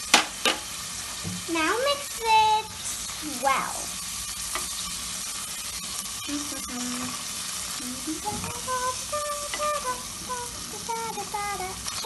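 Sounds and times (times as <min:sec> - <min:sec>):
vegetables sizzling in oil: 0:00.0 - 0:12.0
person humming: 0:06.2 - 0:12.0.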